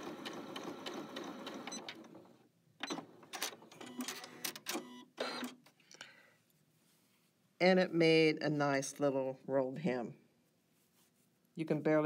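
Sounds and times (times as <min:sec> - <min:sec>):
sewing machine stitching: 0:00.0 - 0:05.6.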